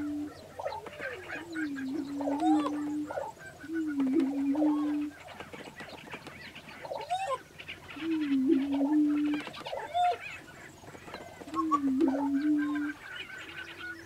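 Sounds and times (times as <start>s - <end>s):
low held hoot: 0.0s - 0.7s.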